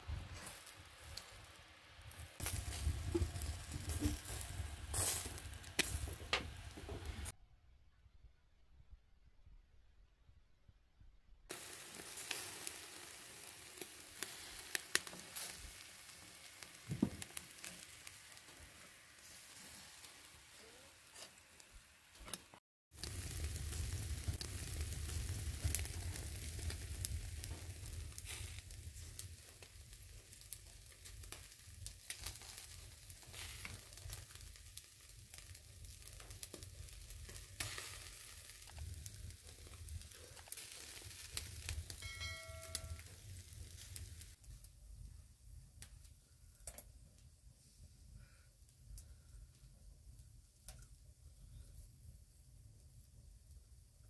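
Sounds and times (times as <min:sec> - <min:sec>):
crackles and pops: 0:00.0 - 0:07.3, 0:11.5 - 0:47.4, 0:48.2 - 0:54.0
meat sizzling over charcoal: 0:00.0 - 0:07.4, 0:11.5 - 0:46.9
deep rumble: 0:02.4 - 0:07.3.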